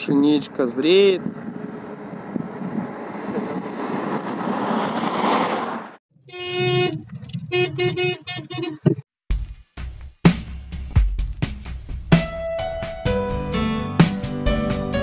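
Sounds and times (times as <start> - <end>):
car horn blasts and toots: 6.2 - 9.0.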